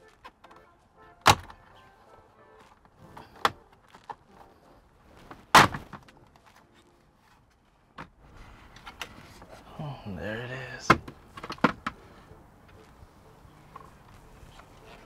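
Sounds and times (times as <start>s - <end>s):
faint background music: 0.0s - 15.0s
plastic clips popping loose: 1.2s - 1.7s.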